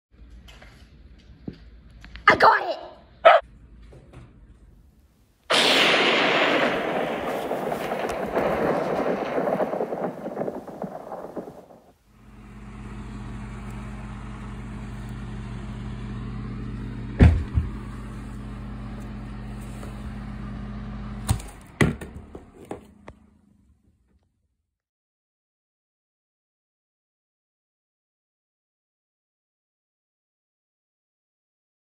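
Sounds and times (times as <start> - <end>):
thunderclap rumbling: 5.5 - 15.7.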